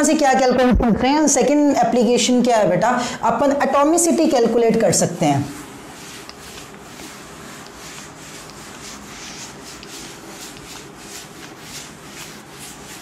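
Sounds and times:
cloth wiping chalkboard: 0:04.0 - 0:13.0.

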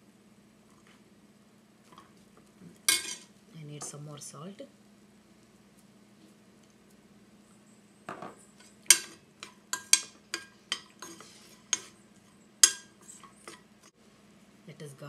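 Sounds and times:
metal spoon scraping frying pan: 0:02.9 - 0:03.3, 0:08.5 - 0:13.6.

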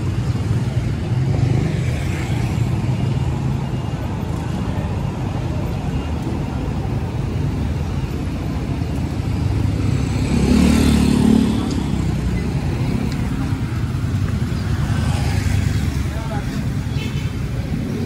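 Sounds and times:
cars and motorcycles passing: 0:00.0 - 0:18.0
motorcycle passing close: 0:09.6 - 0:13.9.

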